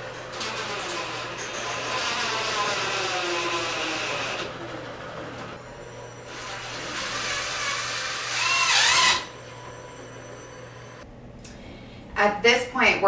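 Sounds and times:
cordless drill driving screw: 6.3s - 9.3s.

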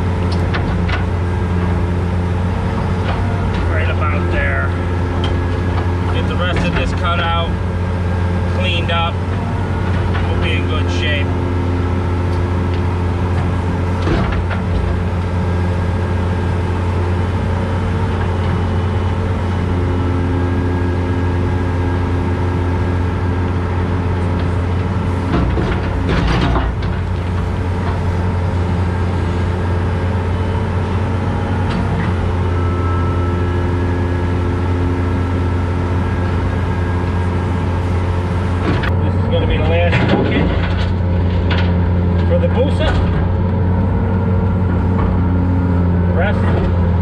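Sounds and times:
diesel engine running: 0.0s - 47.0s
hydraulics working: 0.0s - 47.0s
bucket clanking and scraping: 2.8s - 7.6s, 24.4s - 28.0s, 38.6s - 43.4s.

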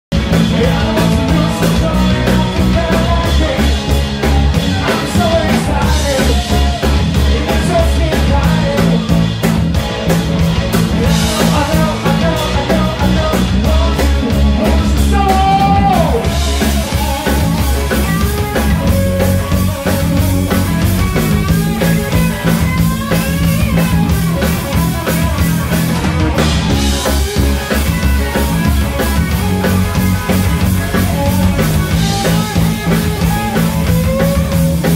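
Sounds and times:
live rock band playing: 0.1s - 34.9s
man singing into microphone: 0.5s - 9.0s, 11.0s - 17.4s.

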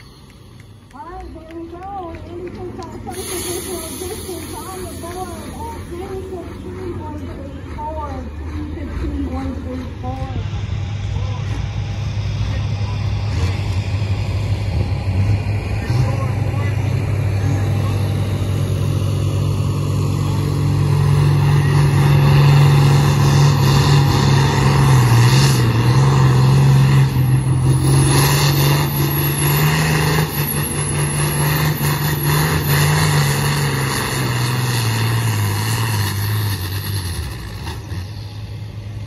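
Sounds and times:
high whine: 0.0s - 1.3s
tractor diesel engine running hard: 0.0s - 39.0s.

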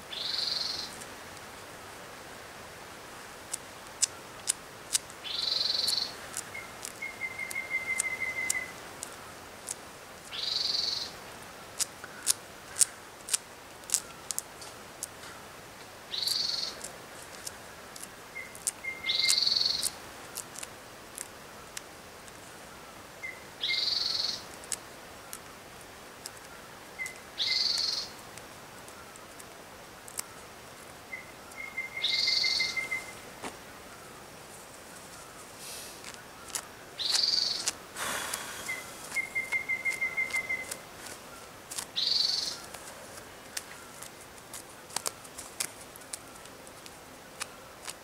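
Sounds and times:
sharp bird ticks: 3.5s - 11.2s, 11.8s - 15.2s, 16.1s - 22.4s, 23.2s - 25.5s, 26.2s - 28.2s, 31.1s - 33.2s, 36.0s - 42.9s
harsh bird call: 37.0s - 40.8s.

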